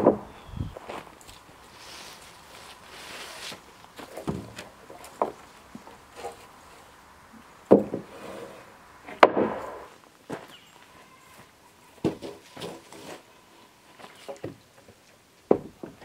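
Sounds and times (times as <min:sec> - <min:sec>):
loud hollow wooden clunks: 0:00.0 - 0:00.4, 0:04.1 - 0:05.4, 0:07.7 - 0:08.1, 0:09.1 - 0:09.9, 0:15.5 - 0:16.0
wooden boards knocking: 0:00.0 - 0:00.4, 0:07.7 - 0:08.1, 0:15.5 - 0:16.0.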